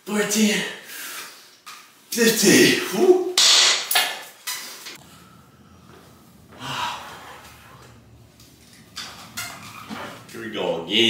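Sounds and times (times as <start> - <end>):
man breathing hard: 5.0 - 8.3.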